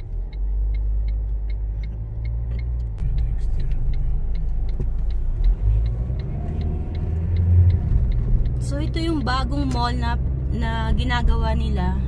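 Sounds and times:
road and engine rumble in car: 0.0 - 12.0
turn signal ticking: 0.0 - 12.0.

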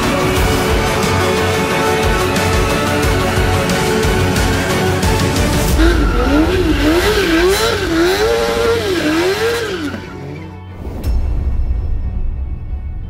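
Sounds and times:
background music: 0.0 - 13.0
motorcycle engine revving: 3.4 - 10.7
tyre squeal: 5.7 - 10.6.

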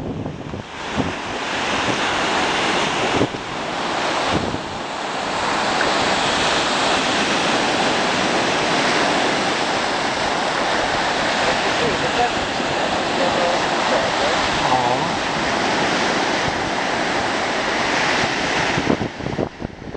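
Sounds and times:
sea surf rushing: 0.0 - 19.9
wind buffeting microphone: 0.0 - 19.9.

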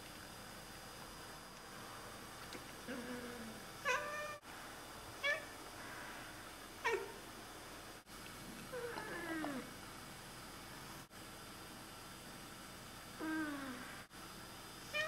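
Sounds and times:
cat meowing: 3.8 - 4.4.

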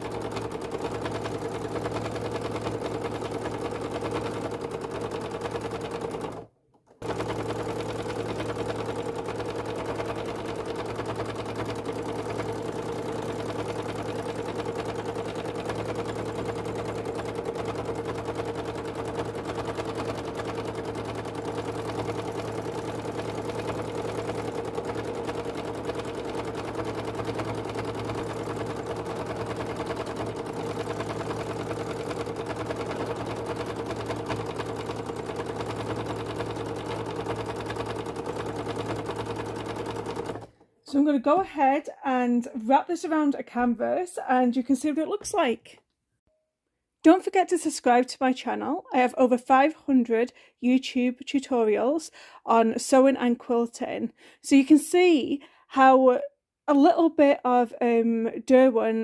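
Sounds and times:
sewing machine running fast: 0.0 - 40.6.

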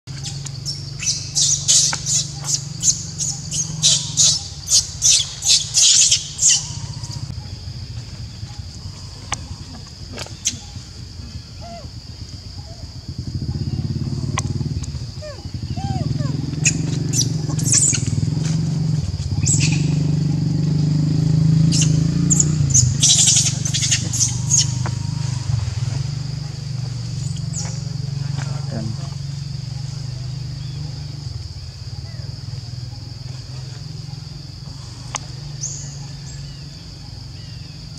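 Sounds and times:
engine running at low pitch: 0.0 - 37.9
monkey screaming squeals: 15.2 - 18.2.

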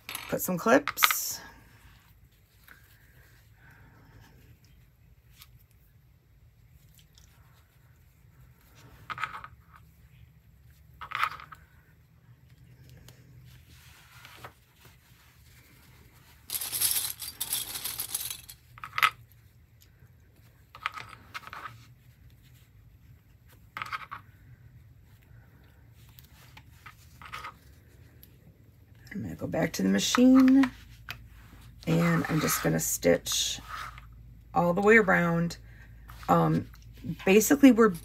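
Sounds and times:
rattling and rustling: 13.8 - 19.1.

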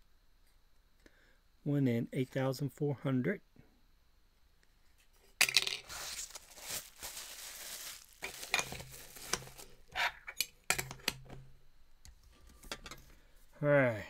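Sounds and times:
metal cans clinking on table: 8.2 - 9.4.

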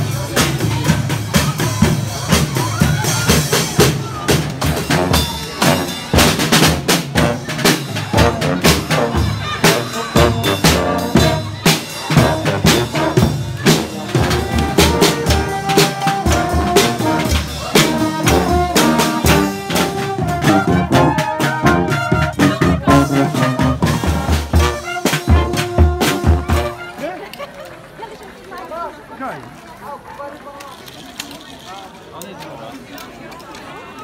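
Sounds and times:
bass and snare drums: 0.0 - 27.1
brass melody: 1.6 - 27.2.

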